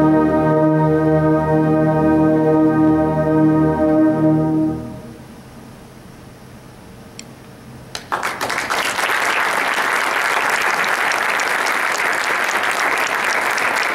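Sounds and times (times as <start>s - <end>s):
audience applause: 8.0s - 13.9s.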